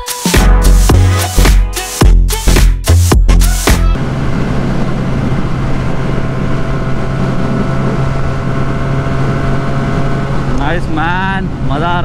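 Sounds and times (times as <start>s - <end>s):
wind rush on microphone: 4.0s - 12.0s
motorcycle engine at high revs: 5.4s - 10.8s.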